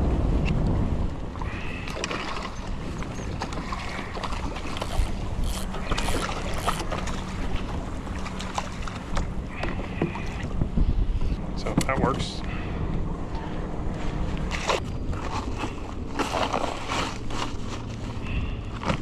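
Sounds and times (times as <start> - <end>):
fish splashing and thrashing: 1.3 - 10.8, 14.5 - 19.0
gear knocks and clicks: 4.7 - 7.1.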